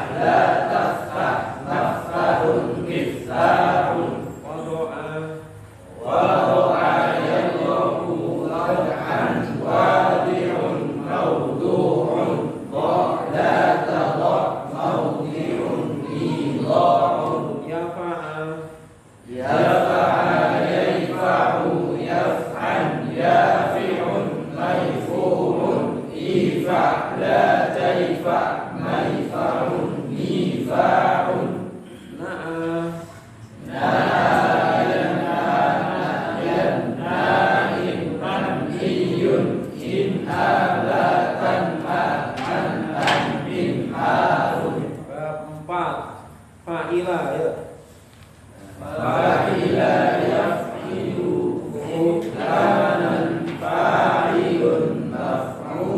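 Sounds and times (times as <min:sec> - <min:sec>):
group of voices chanting: 0:06.0 - 0:17.7, 0:19.3 - 0:33.0, 0:33.6 - 0:45.0, 0:48.6 - 0:55.9.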